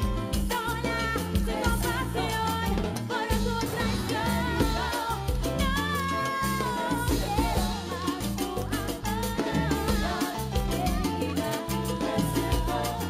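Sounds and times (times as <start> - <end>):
congas: 0.0 - 13.0
latin dance orchestra playing: 0.0 - 13.0
woman singing: 0.1 - 13.0.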